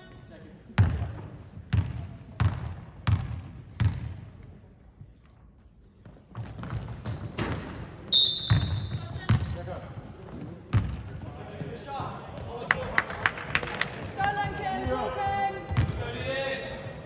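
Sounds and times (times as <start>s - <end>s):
basketball bouncing on court: 0.8s - 4.6s, 6.0s - 16.0s
sneakers squeaking on floor: 5.6s - 17.0s.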